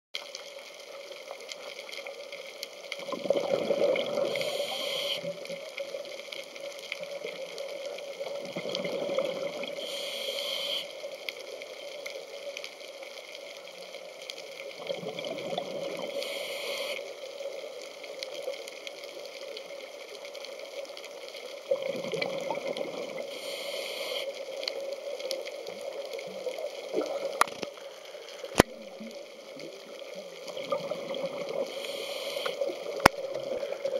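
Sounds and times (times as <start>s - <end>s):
rush of bubbles: 3.0s - 5.7s, 8.2s - 10.0s, 14.6s - 16.4s, 21.6s - 23.4s, 25.6s - 33.9s
diver breathing through regulator: 4.1s - 5.4s, 9.8s - 10.9s, 16.1s - 17.0s, 23.3s - 24.4s, 31.7s - 32.8s.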